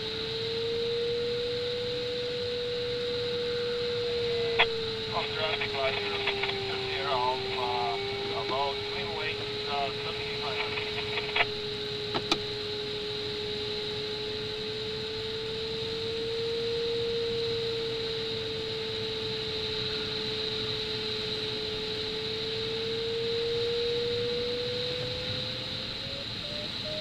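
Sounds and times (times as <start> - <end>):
variometer steady tone: 0.0 - 25.5.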